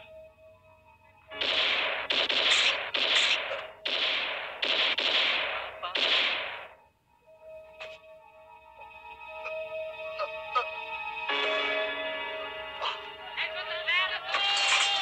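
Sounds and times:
soft film music: 0:00.0 - 0:15.0
rifle gunshots echoing: 0:01.3 - 0:06.8.

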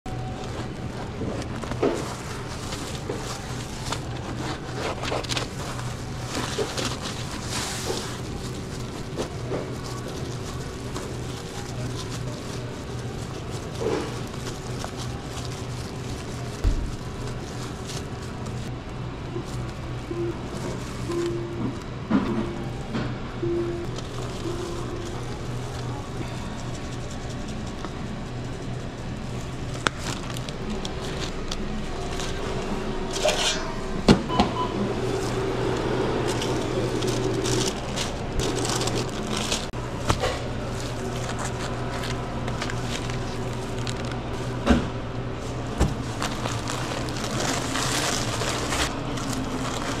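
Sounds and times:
equipment hum: 0:00.0 - 0:50.0
paper wrap rustling: 0:00.1 - 0:21.8, 0:23.8 - 0:33.7, 0:34.7 - 0:50.0.

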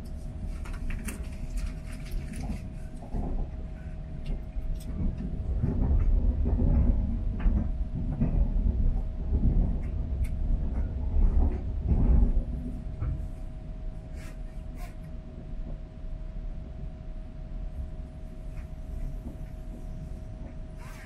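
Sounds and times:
train deep rumble: 0:00.0 - 0:21.0.

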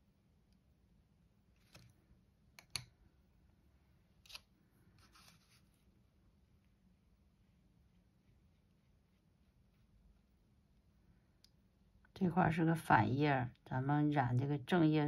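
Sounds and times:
brief rustle: 0:04.2 - 0:05.8.

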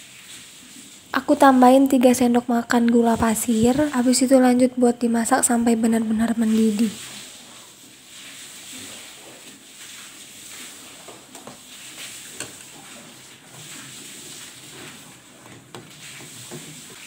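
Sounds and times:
liquid hissing on stove: 0:06.8 - 0:17.0.

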